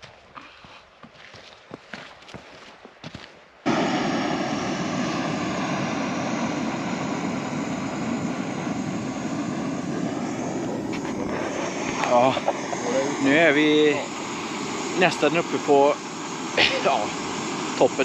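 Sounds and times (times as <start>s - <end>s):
footsteps on a trail: 0.0s - 3.7s, 10.8s - 12.1s
wind buffeting microphone: 5.2s - 15.2s.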